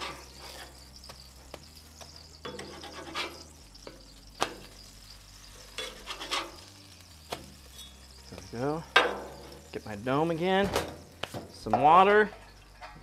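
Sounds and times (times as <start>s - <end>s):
metal spatula scraping griddle: 0.0s - 8.2s.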